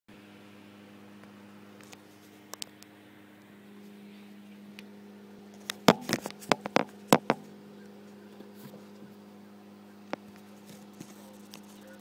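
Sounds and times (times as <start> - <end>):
steady low hum: 0.1 - 12.0
phone knocking on wooden plank: 5.9 - 7.4.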